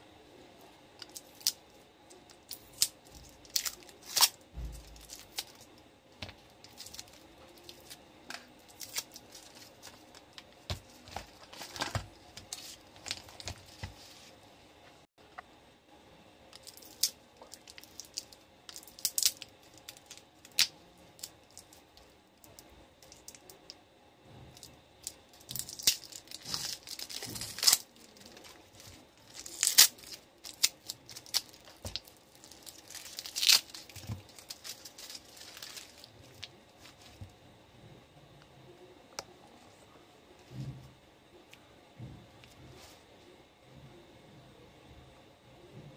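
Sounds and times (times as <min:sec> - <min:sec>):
plastic wrap tearing and crinkling: 0:02.3 - 0:05.7, 0:06.4 - 0:14.0, 0:16.6 - 0:21.8, 0:24.6 - 0:37.3.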